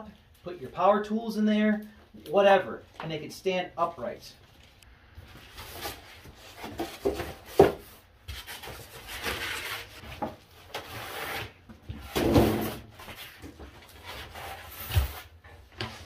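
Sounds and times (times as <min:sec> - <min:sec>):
packaging rustling and scraping: 0:04.5 - 0:16.0.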